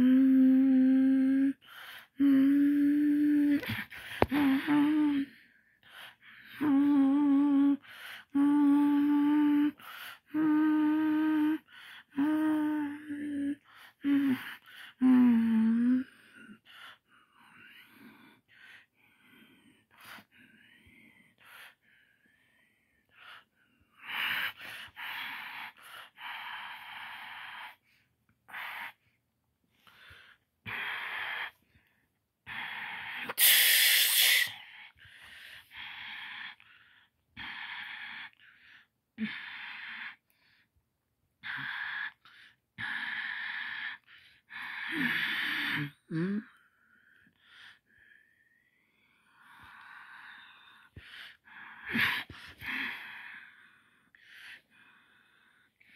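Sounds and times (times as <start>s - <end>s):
person breathing huffs and hisses: 32.5s - 40.2s.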